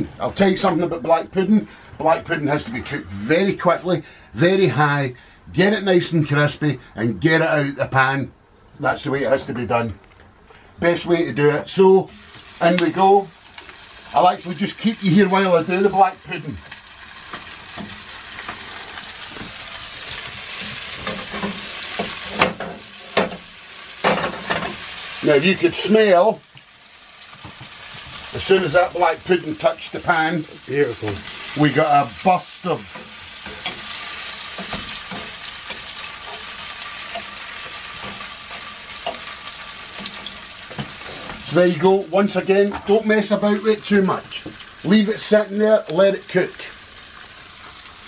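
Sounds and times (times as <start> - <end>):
black pudding sizzling in oil: 12.0 - 48.0
fork scraping a pan: 20.1 - 23.4, 32.9 - 41.4.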